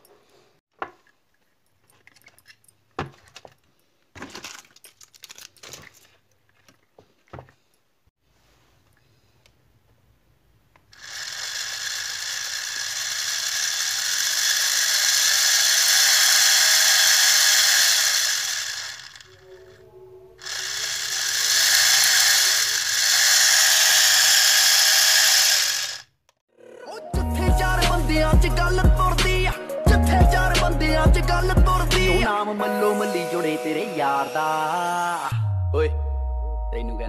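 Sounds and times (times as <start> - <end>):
toy motor gear whine: 10.9 - 19.8, 20.4 - 26.1
music: 19.4 - 20.4, 26.7 - 37.0.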